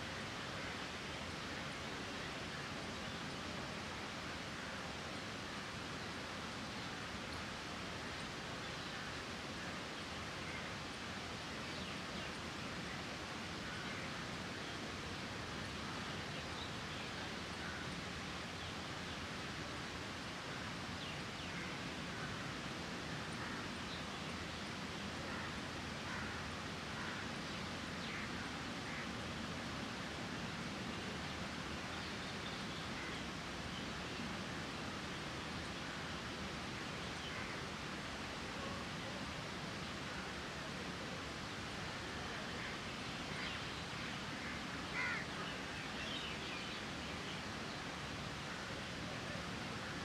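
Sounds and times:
outdoor background hiss: 0.0 - 50.0.

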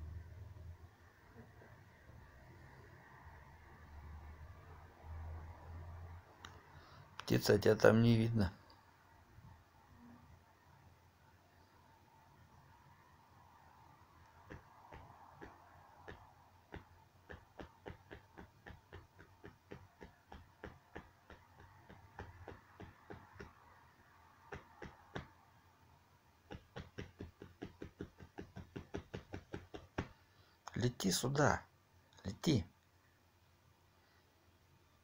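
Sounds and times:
pigeon claws tapping on floor: 14.5 - 23.6, 26.5 - 30.1.

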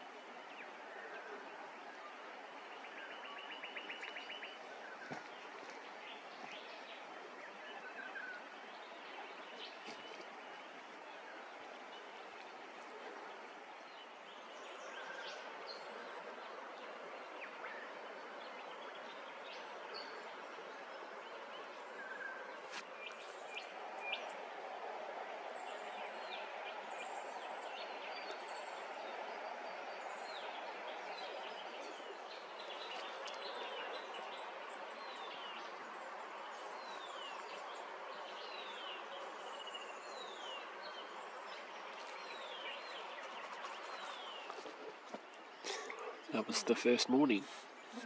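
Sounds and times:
steady outdoor hiss: 0.0 - 48.0
birds chirping: 25.5 - 48.0.

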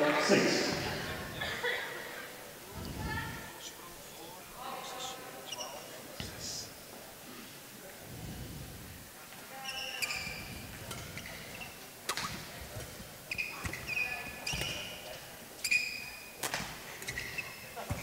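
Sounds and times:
shoes squeaking on court floor: 5.4 - 6.4, 9.6 - 18.0
rackets striking shuttlecock: 12.1 - 13.0, 16.4 - 17.2.

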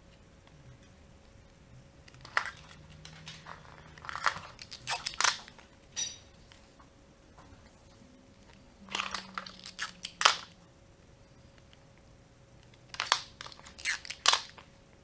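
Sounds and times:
paper crinkling and rustling: 2.1 - 5.7.

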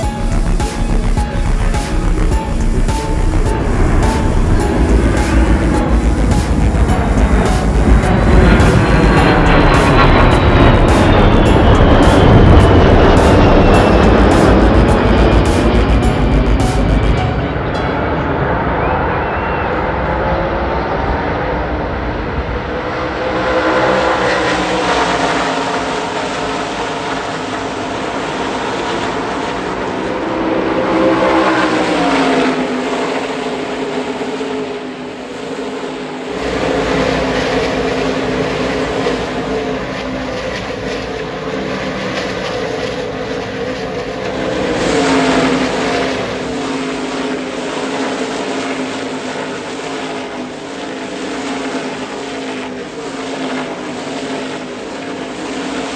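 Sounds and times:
race truck engines passing: 20.0 - 52.4.

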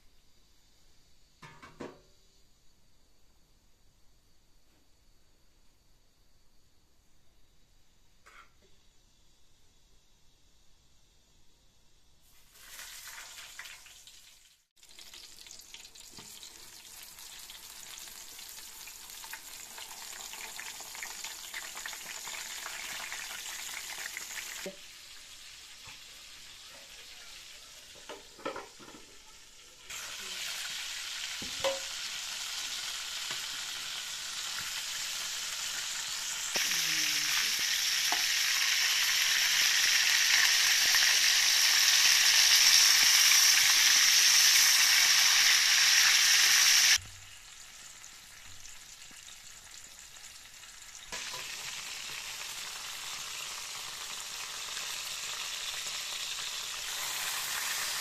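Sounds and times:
eggplant sizzling in hot oil: 12.2 - 58.0.

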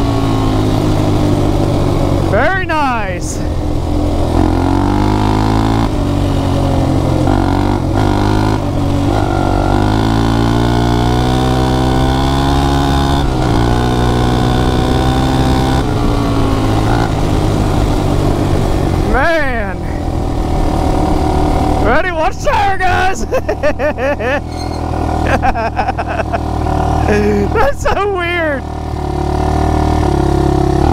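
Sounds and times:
quad engine pulling under load: 24.1 - 27.6.

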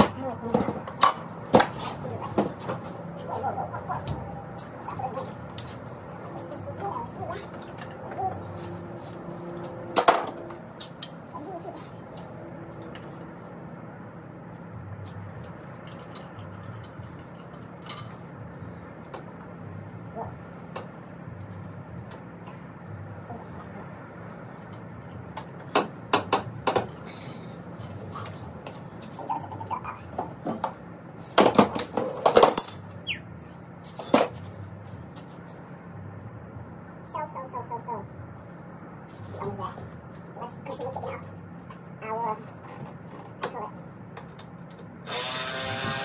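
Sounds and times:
steady low hum: 0.0 - 46.0
metal tools clinking: 32.2 - 32.9.

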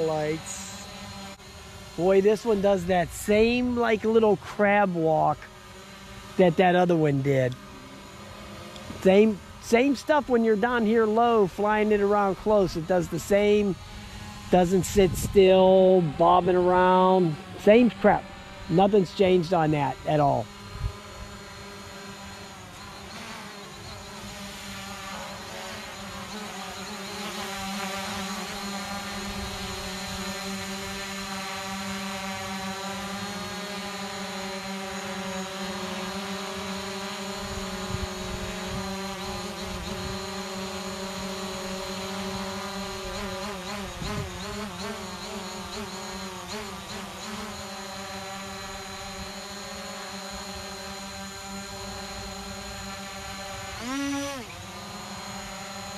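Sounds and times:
drone propellers buzzing: 0.0 - 55.9.

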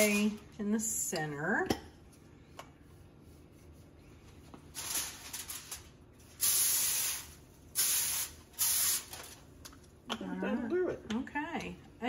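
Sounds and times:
faint room hum: 0.0 - 12.0
aerosol can hiss: 6.4 - 9.1.

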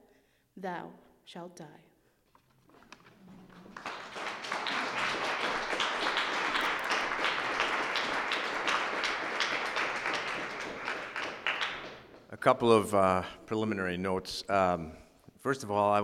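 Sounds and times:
audience applauding: 2.8 - 12.5.

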